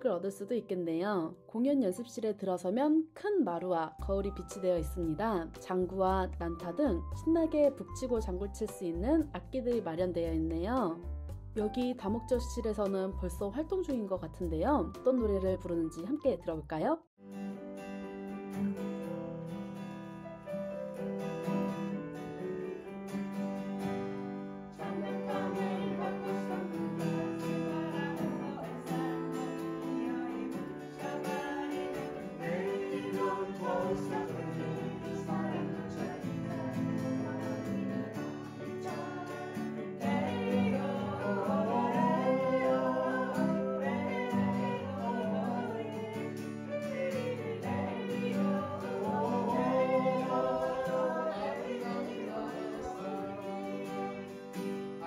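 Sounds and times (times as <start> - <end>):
strummed acoustic guitar: 17.2 - 55.0
voices singing: 24.8 - 38.2, 38.8 - 54.4.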